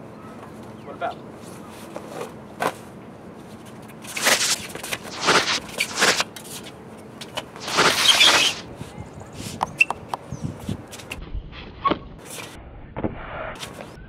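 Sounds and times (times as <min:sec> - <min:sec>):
swishing whooshes of blows: 0:04.1 - 0:06.2, 0:07.6 - 0:08.7.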